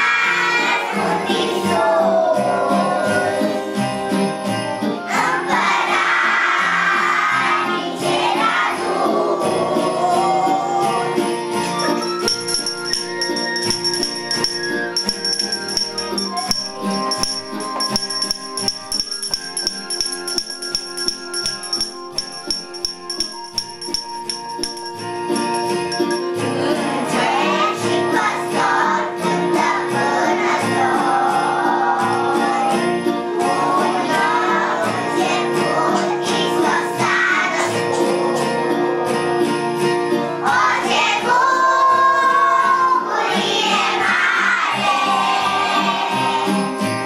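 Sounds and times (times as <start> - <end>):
children singing: 0.0 - 3.8, 5.1 - 11.1, 26.4 - 38.8, 40.4 - 46.7
christmas carol backing music: 0.0 - 47.0.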